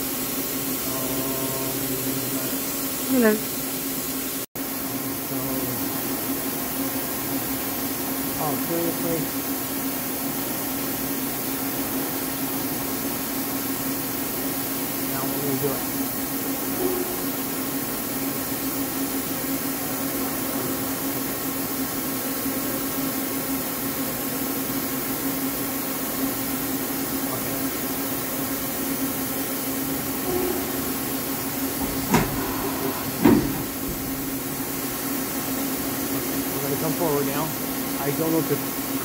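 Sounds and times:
steady machine hum: 0:00.0 - 0:39.0
sharp mechanical clunks: 0:30.2 - 0:34.4.

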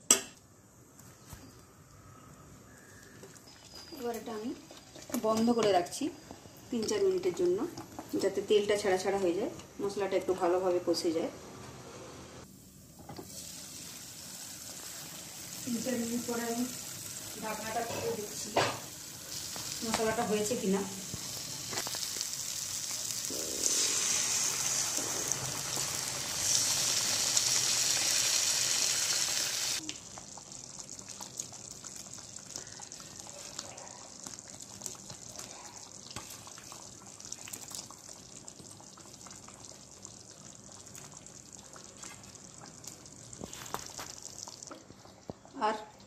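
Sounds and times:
curry gravy simmering with pops: 0:01.0 - 0:09.4, 0:13.0 - 0:28.5, 0:29.7 - 0:46.0
water hissing in hot pan: 0:12.4 - 0:33.3.

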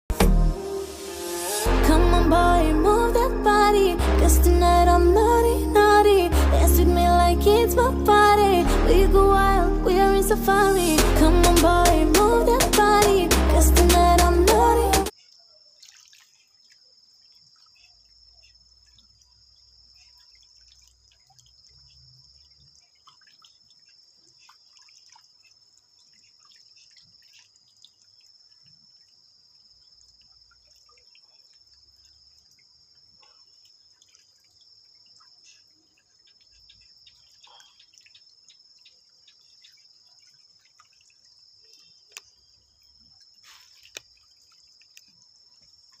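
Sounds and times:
water drips and splashes: 0:15.0 - 0:46.0.

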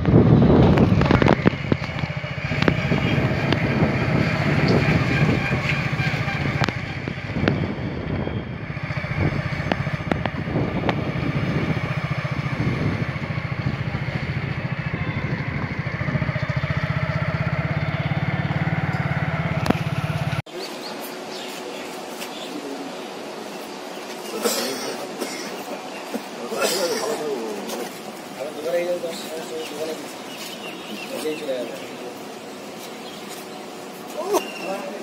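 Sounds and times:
vehicle engine running: 0:00.0 - 0:20.5.

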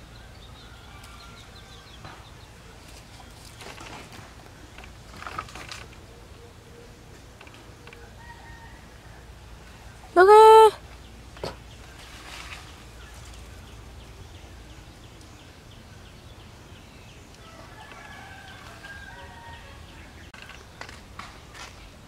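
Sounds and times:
rooster crowing: 0:08.1 - 0:09.3, 0:17.4 - 0:20.0.

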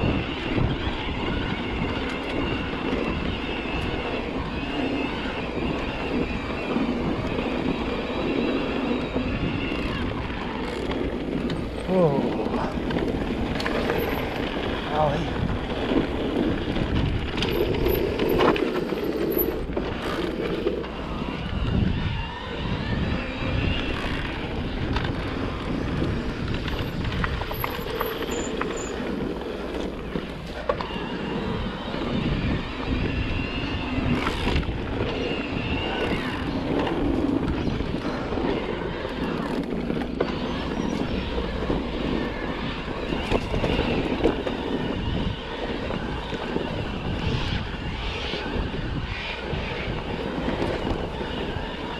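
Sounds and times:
bike tyre noise on dirt: 0:00.0 - 0:51.9
wind rumbling on microphone: 0:00.0 - 0:51.9.

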